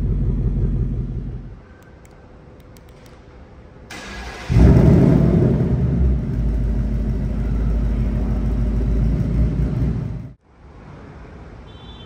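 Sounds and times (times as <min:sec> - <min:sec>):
car engine starting and idling: 0:00.0 - 0:01.6, 0:03.9 - 0:10.4.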